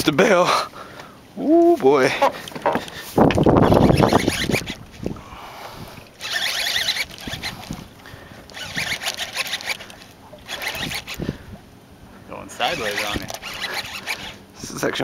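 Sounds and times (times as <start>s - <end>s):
light handling knocks: 2.2s - 3.5s
fishing reel whirring: 2.8s - 5.2s, 5.8s - 11.4s, 12.5s - 14.6s.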